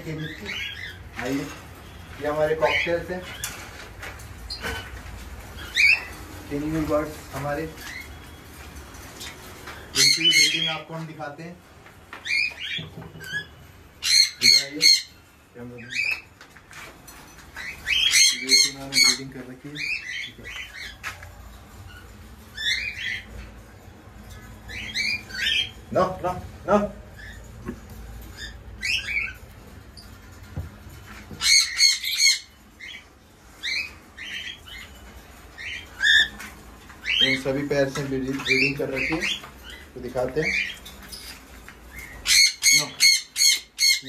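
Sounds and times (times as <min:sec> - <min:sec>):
parrots squawking: 0:00.0 - 0:01.7, 0:02.4 - 0:06.3, 0:09.6 - 0:10.9, 0:12.2 - 0:16.2, 0:17.6 - 0:30.3, 0:31.0 - 0:44.0
parrots squawking harshly: 0:05.6 - 0:06.2, 0:09.9 - 0:10.9, 0:12.2 - 0:15.2, 0:17.6 - 0:21.0, 0:21.9 - 0:23.6, 0:24.7 - 0:25.8, 0:31.3 - 0:36.4, 0:41.9 - 0:44.0.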